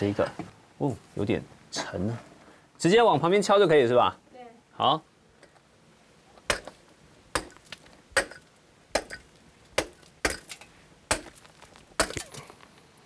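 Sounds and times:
pick striking coal: 6.4s - 12.7s.

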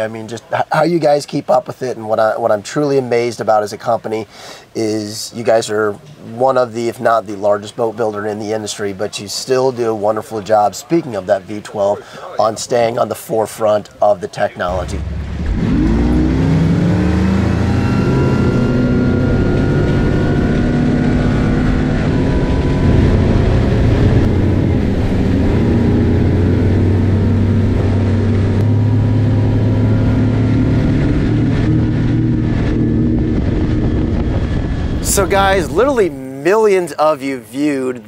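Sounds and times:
outboard engine at high speed: 14.7s - 36.0s.

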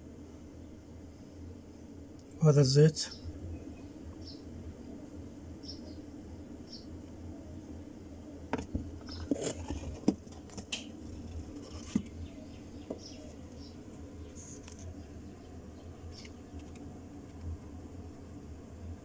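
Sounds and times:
low hum: 3.1s - 19.0s.

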